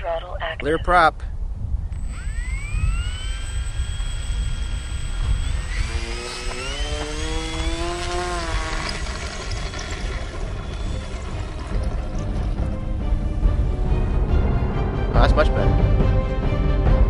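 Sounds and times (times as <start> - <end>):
wind rumble on microphone: 0.2 - 15.6
electric motor propeller whine: 1.8 - 14.9.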